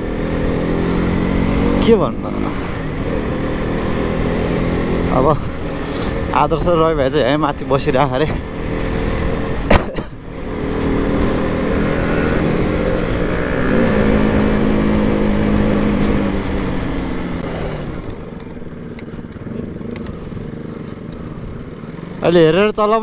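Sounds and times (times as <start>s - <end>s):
motorcycle engine running: 0.0s - 23.0s
high squeal: 17.5s - 19.6s.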